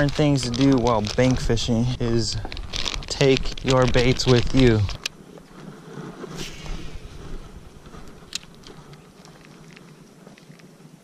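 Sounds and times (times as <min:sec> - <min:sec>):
wind on microphone: 0:00.0 - 0:11.0
fishing rod swish: 0:06.3 - 0:07.4.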